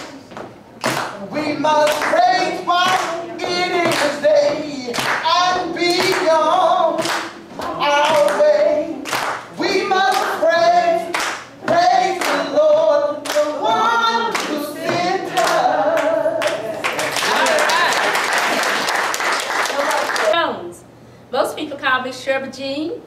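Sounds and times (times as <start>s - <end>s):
hands clapping in a beat: 0.0s - 6.4s, 7.0s - 10.4s, 11.1s - 20.4s
gospel singing: 0.0s - 17.9s.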